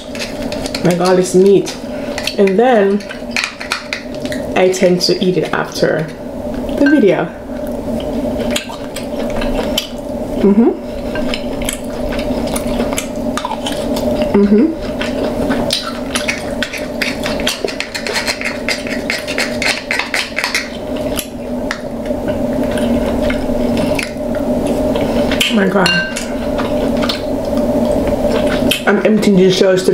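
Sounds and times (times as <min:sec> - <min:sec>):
steady low hum: 0:00.0 - 0:29.9
crab shells cracking: 0:11.4 - 0:14.3, 0:14.9 - 0:25.6.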